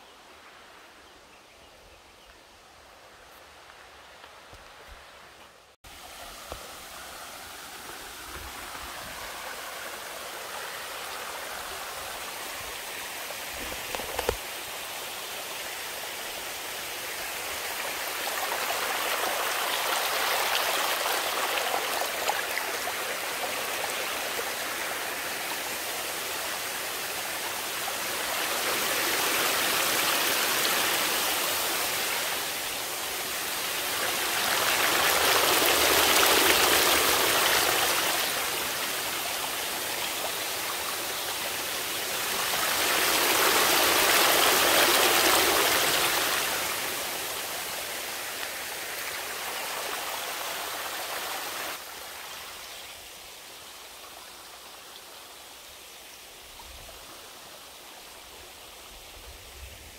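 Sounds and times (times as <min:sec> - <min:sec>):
stream splashing over rocks: 0:05.9 - 0:52.5.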